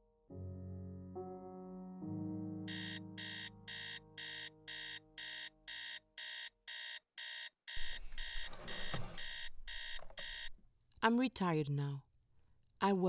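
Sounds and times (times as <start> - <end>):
digital alarm clock beeping: 2.7 - 10.5.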